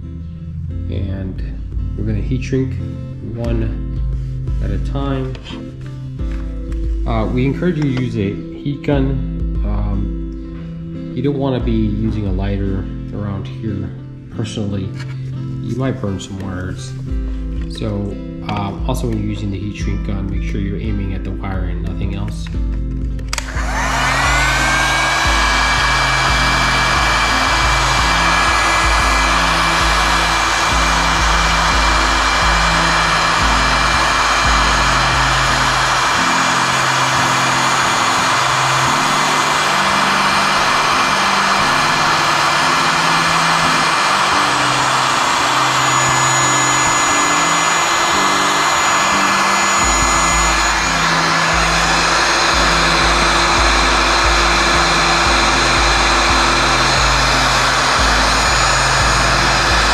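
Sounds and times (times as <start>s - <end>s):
background music with deep bass: 0.0s - 59.9s
heat gun fan whine: 4.2s - 8.3s, 23.2s - 59.9s
air rushing: 23.4s - 59.9s.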